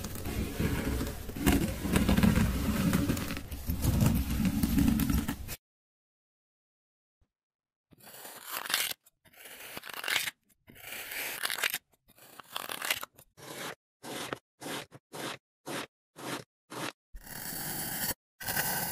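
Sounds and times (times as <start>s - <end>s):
blade cutting through sand: 13.4s - 18.9s.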